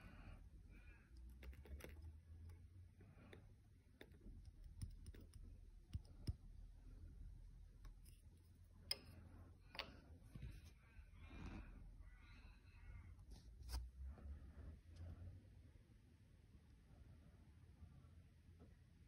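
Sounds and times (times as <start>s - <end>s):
plastic cups clicking and tapping: 1.2s - 6.4s.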